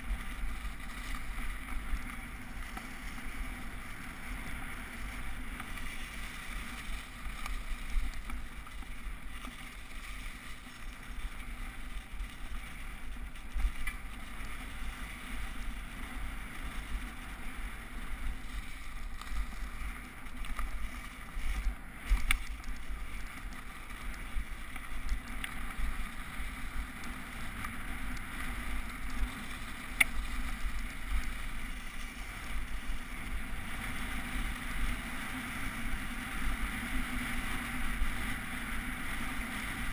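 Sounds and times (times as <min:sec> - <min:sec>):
bike rumble and rattle: 0:00.0 - 0:39.9.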